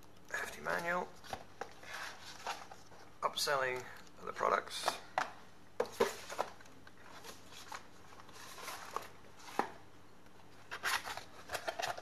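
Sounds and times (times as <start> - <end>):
cardboard rustling: 0.7 - 3.1, 4.8 - 9.8, 10.5 - 12.0.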